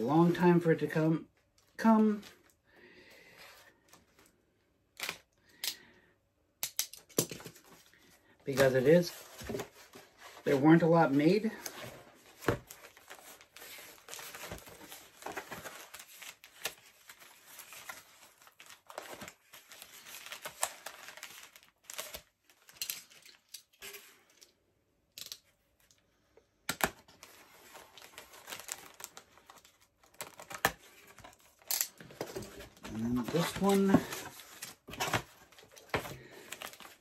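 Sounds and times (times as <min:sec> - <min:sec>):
packaging crinkling and tearing: 0:11.4 - 0:24.1, 0:26.7 - 0:37.0.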